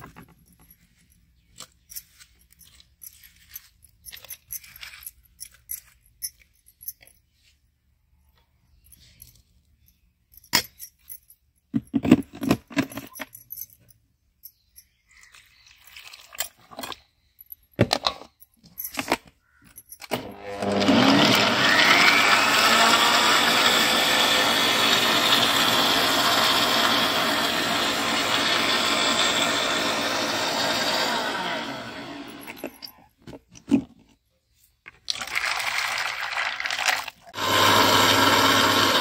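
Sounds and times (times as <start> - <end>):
electric mixer grinder running: 20.2 - 32.8, 37.4 - 39.0.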